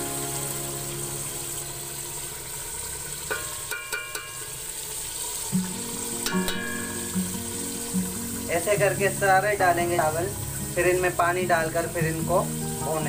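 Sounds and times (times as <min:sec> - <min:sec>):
hot gravy hissing: 0:00.0 - 0:13.0
ladle clinking against metal pot: 0:03.3 - 0:04.5, 0:06.2 - 0:07.4.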